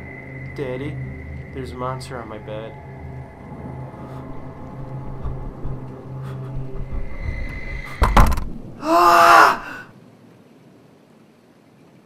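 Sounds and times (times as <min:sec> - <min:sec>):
low suspense drone: 0:00.0 - 0:08.8
shrill scream: 0:08.8 - 0:09.9.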